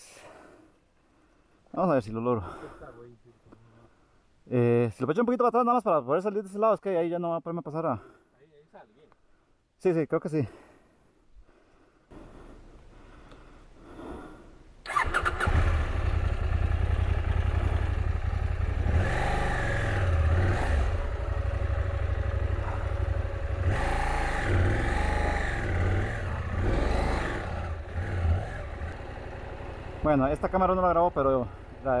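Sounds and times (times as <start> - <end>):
motorcycle engine starting and revving: 14.8 - 32.0.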